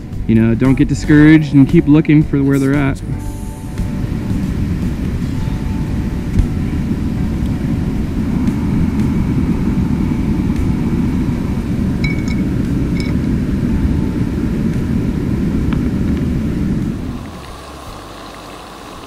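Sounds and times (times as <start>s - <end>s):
river rushing: 2.7s - 19.0s
frying pan clinking on stove: 12.0s - 13.2s.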